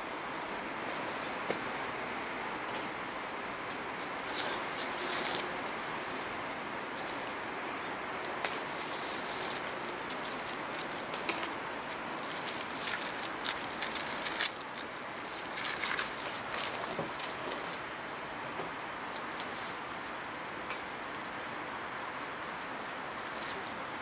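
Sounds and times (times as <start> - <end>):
steady hiss: 0.0 - 24.0
tent fabric rustling: 3.8 - 18.2.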